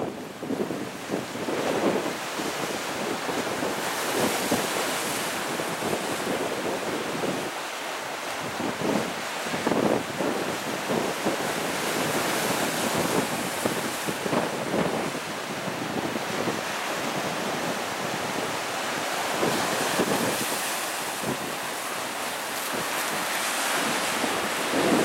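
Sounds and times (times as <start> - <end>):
ocean waves crashing over boulders: 0.0 - 25.0
wind buffeting microphone: 8.4 - 25.0.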